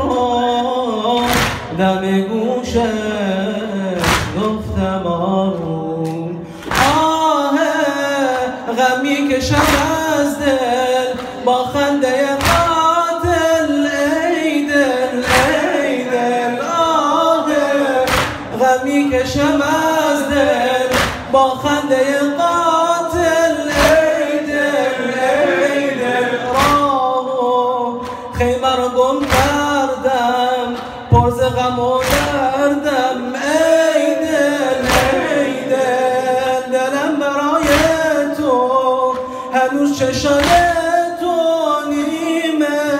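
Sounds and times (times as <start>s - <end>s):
man chanting a lament: 0.0s - 42.9s
sharp beat: 18.0s - 21.8s, 26.5s - 27.0s.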